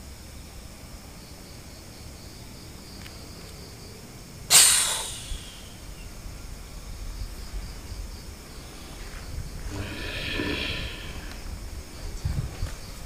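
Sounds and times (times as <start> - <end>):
crickets chirring: 0.0 - 13.0
sharp hissing breath: 4.5 - 5.9, 9.6 - 11.6.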